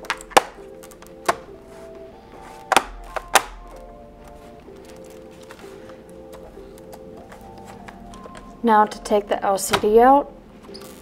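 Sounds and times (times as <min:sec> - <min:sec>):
plastic cover snapping clicks: 0:00.0 - 0:01.5, 0:02.7 - 0:03.8
soft background music: 0:00.0 - 0:11.0.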